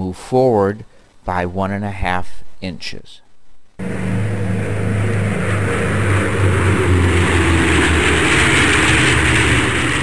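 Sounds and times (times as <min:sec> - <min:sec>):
propeller airplane engine: 0:03.8 - 0:10.0.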